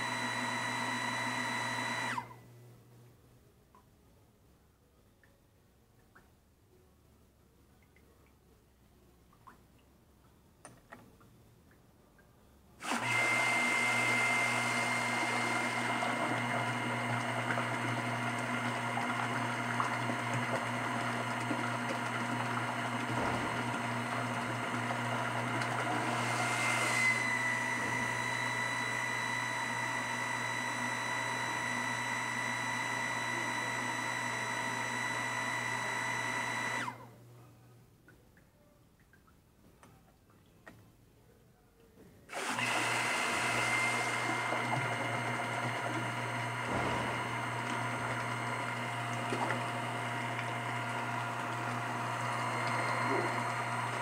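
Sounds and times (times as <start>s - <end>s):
electric water pump whining: 0.0s - 2.5s, 12.8s - 37.1s, 42.3s - 54.0s.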